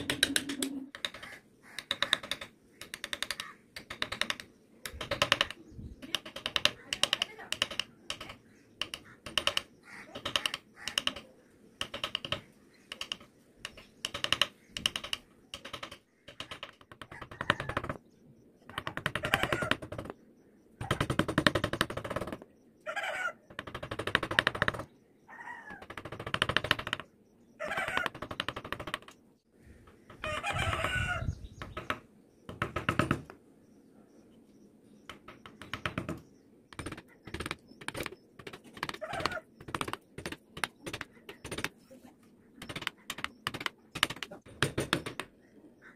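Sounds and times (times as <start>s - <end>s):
wavering pitched calls: 38.8s - 39.6s.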